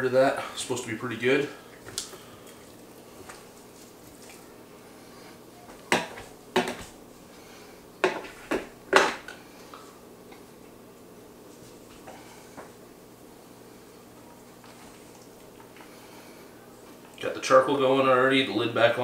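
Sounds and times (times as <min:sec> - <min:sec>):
kitchen items knocking on countertop: 0:05.9 - 0:06.9.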